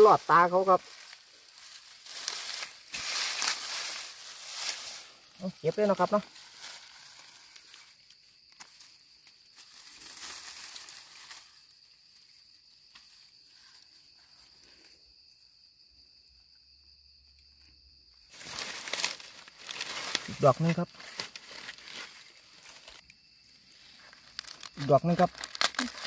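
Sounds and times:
dry grass and leaves rustling: 0:00.0 - 0:15.4, 0:17.5 - 0:26.0
high insect drone: 0:00.0 - 0:26.0.

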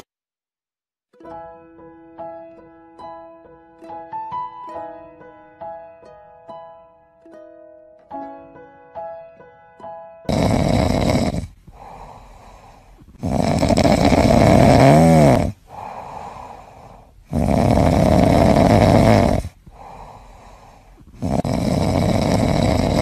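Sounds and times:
kitten snoring: 0:10.3 - 0:23.0
whistling snore tone: 0:21.2 - 0:23.0.

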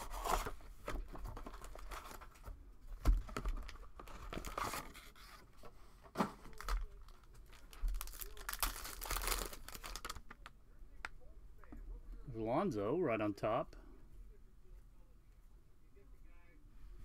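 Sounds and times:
wrapper crinkling and crackling: 0:06.4 - 0:10.5
card pack wrapper tearing: 0:06.5 - 0:10.4.

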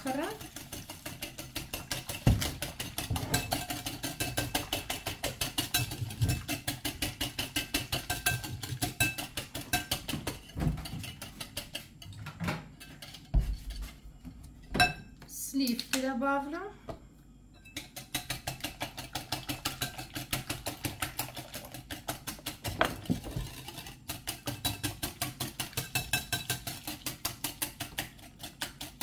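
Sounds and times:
whisk clicking against bowl: 0:00.0 - 0:11.9, 0:17.8 - 0:29.0.

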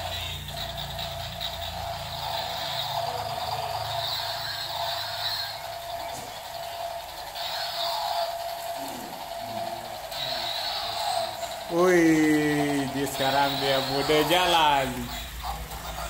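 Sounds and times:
electronic helicopter sound effect: 0:00.0 - 0:16.0
toy motor and rotor whirring: 0:00.0 - 0:16.0.

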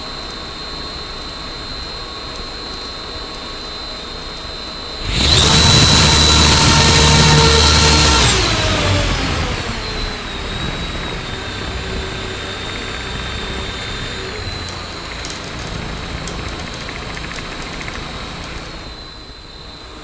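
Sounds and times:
electric motor whine: 0:04.9 - 0:20.0
propeller drone: 0:05.0 - 0:20.0.

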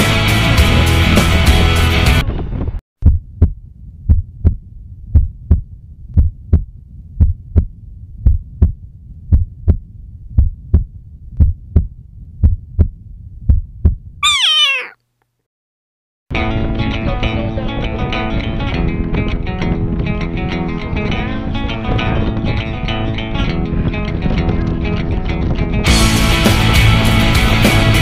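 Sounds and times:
heartbeat thumps: 0:03.0 - 0:09.8, 0:10.4 - 0:14.0
short call sliding down in pitch: 0:14.2 - 0:15.0.

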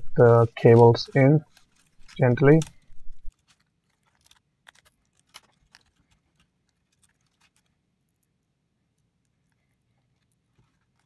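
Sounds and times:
fingers clicking ribbon cables: 0:00.2 - 0:08.3.

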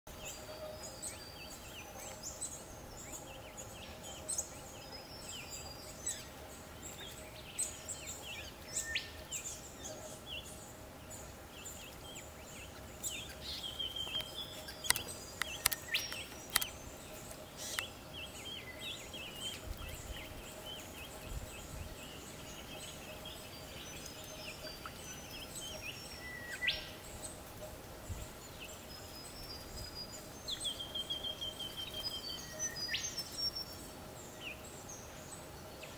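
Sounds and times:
faint steady hum: 0:00.1 - 0:35.9
small birds chirping: 0:00.1 - 0:35.9
sharp clicks: 0:14.1 - 0:16.8.

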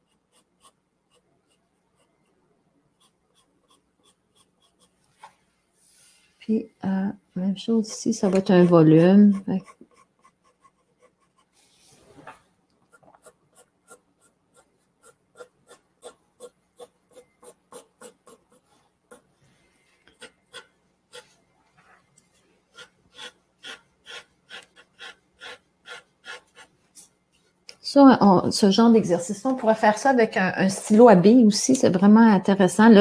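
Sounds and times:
pencil scratching on paper: 0:00.0 - 0:05.1, 0:07.7 - 0:12.3, 0:12.9 - 0:19.3, 0:20.0 - 0:21.4, 0:22.7 - 0:26.8.

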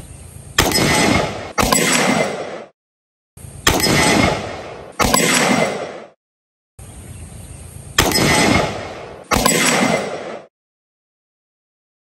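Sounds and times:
pistol shots with echo: 0:00.6 - 0:02.7, 0:03.7 - 0:06.2, 0:08.0 - 0:10.5.

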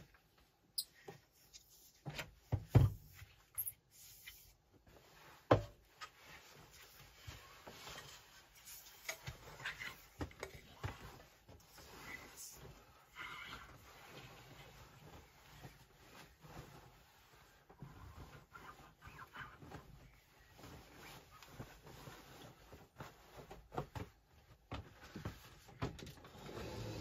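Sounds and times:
duvet rustling: 0:04.8 - 0:25.8.

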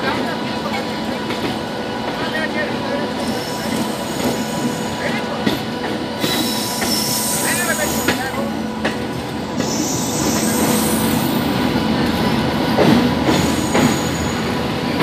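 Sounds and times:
train passing alongside: 0:00.0 - 0:15.0
train wheels rumbling on rails: 0:00.0 - 0:15.0
train wheel squeal: 0:03.2 - 0:05.2, 0:06.2 - 0:08.6, 0:09.6 - 0:11.5, 0:13.3 - 0:14.5.

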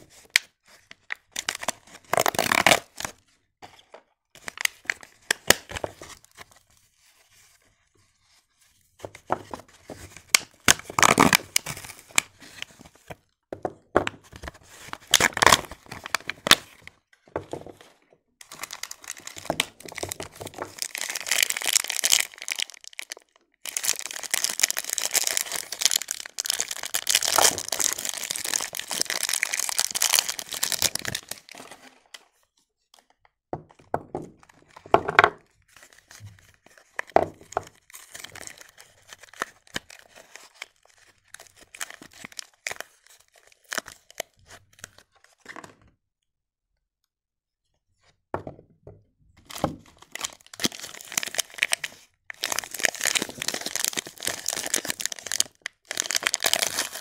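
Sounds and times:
plastic film crinkling and tearing: 0:01.0 - 0:03.2, 0:10.2 - 0:12.7, 0:14.8 - 0:16.8, 0:18.4 - 0:32.1, 0:35.9 - 0:44.8, 0:49.8 - 0:57.0.

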